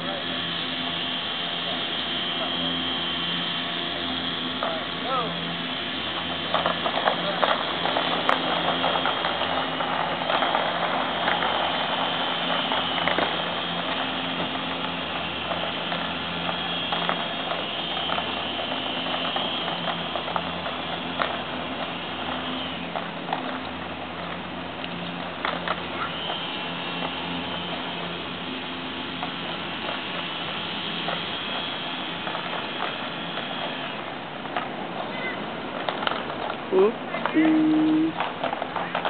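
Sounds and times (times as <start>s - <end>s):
steady low hum: 0.0s - 39.0s
skate wheels rattling on floor: 34.5s - 37.3s.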